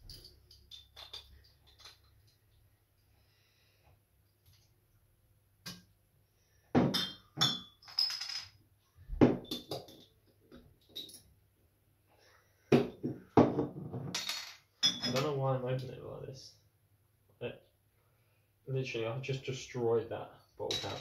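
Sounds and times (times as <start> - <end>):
glass bottles clinking: 0.0 - 2.4, 6.8 - 8.6, 9.2 - 10.1, 10.8 - 11.2, 12.7 - 15.3, 20.7 - 21.0.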